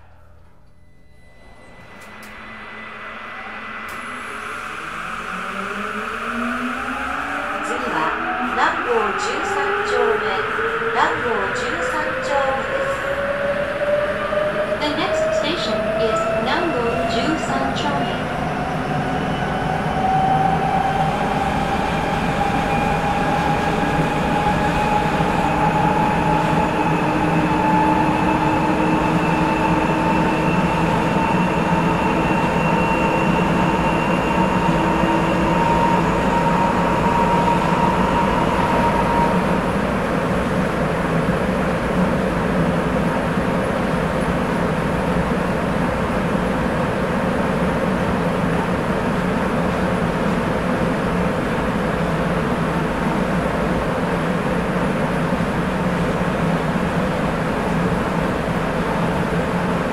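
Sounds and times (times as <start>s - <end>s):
train rumbling in tunnel: 0.0s - 59.9s
train motor whine rising: 0.7s - 7.8s.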